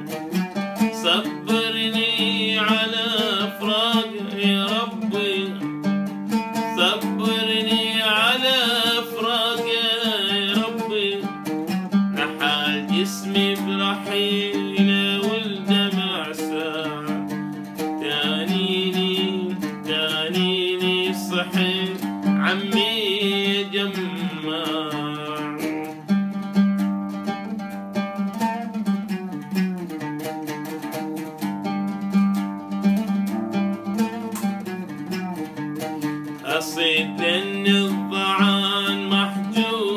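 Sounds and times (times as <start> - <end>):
oud playing: 0.0 - 39.9
man singing: 0.8 - 5.8, 6.5 - 26.0, 36.3 - 39.9.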